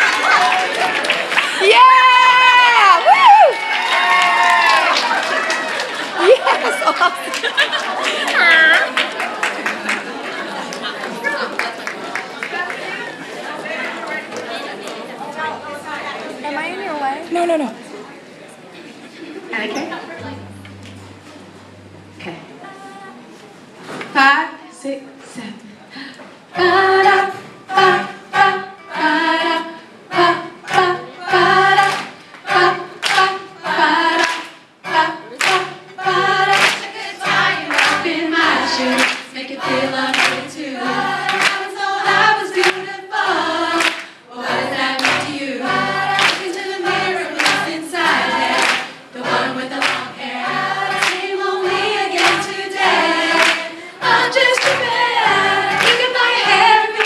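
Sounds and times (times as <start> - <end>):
women singing in chorus: 26.5 - 57.0
hand claps: 34.2 - 34.6, 35.4 - 35.6, 36.5 - 36.9, 37.7 - 38.0, 39.0 - 39.3, 40.2 - 40.4, 41.3 - 41.6, 42.6 - 42.8, 43.8 - 44.1, 46.2 - 46.5, 47.4 - 47.6, 48.6 - 49.0, 49.8 - 50.1, 51.0 - 51.2, 52.2 - 52.4, 53.4 - 53.6, 54.6 - 54.9, 55.8 - 56.0.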